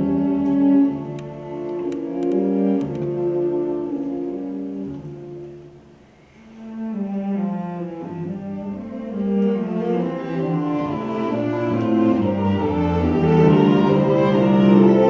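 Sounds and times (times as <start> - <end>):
cello bowed sustained notes: 0.0 - 15.0
string quartet music: 0.0 - 15.0.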